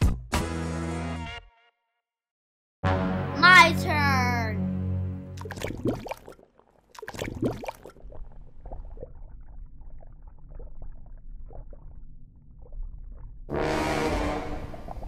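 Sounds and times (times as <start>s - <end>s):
pond water splashing: 5.3s - 11.8s
water drips and sloshes: 5.4s - 13.5s.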